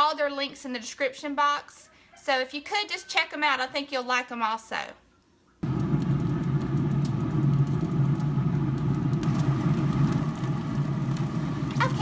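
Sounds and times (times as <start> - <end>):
grill fan humming: 5.6 - 12.0.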